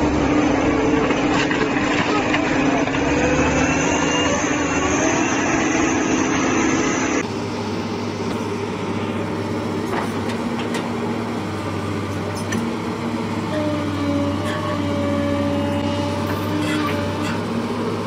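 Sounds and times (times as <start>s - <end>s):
excavator diesel engine running: 0.0s - 18.0s
truck diesel engine labouring: 0.0s - 18.0s
excavator tracks clanking: 0.7s - 5.2s, 9.8s - 11.0s, 12.0s - 12.8s, 13.4s - 18.0s.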